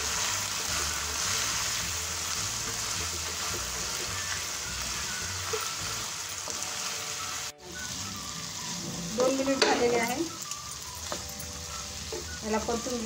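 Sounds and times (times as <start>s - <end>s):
spatula stirring in a pan: 0.0s - 7.3s
chickpeas sizzling in a pan: 0.0s - 13.0s.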